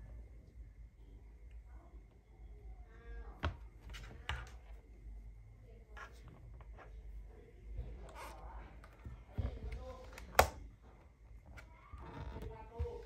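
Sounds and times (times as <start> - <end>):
plastic laptop case clicks: 10.1 - 10.6.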